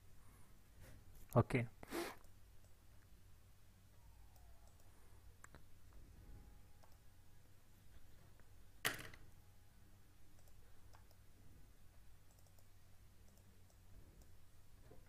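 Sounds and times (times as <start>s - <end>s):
faint low hum: 0.0s - 15.0s
computer mouse clicks: 4.3s - 5.6s, 10.3s - 11.3s, 12.2s - 14.4s.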